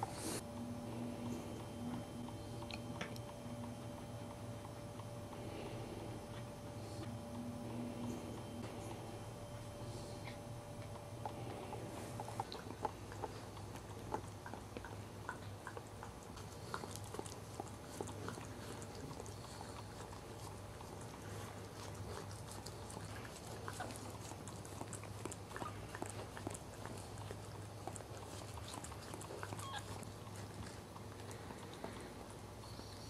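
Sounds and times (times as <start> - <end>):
low steady hum: 0.0 - 33.0
dog chewing rubber toy: 12.1 - 32.1.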